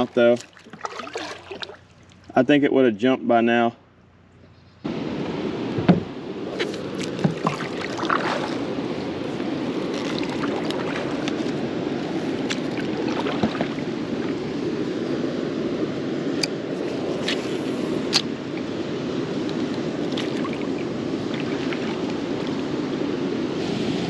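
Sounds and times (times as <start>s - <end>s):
water splashing around kayak: 0.0s - 2.6s, 4.9s - 24.0s
paddle knocking against hull: 0.4s - 1.8s, 5.8s - 6.1s, 7.0s - 8.6s, 12.5s - 13.9s.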